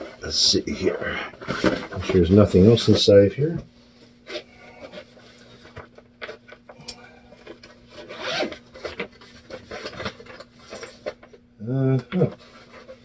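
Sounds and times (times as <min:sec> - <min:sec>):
fabric bag rubbing and rasping: 0:07.8 - 0:11.1.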